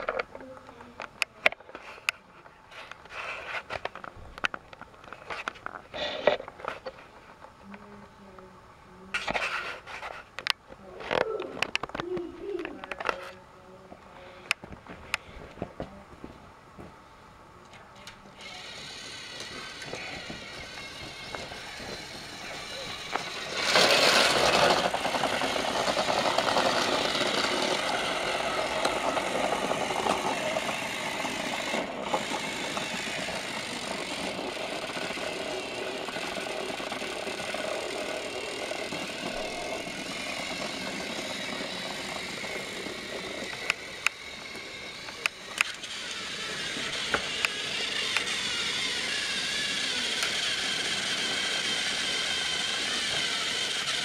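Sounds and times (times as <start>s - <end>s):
toy train motors whirring: 0.0s - 7.8s, 9.1s - 13.4s, 17.8s - 54.0s
wheels rattling on plastic track: 18.0s - 54.0s.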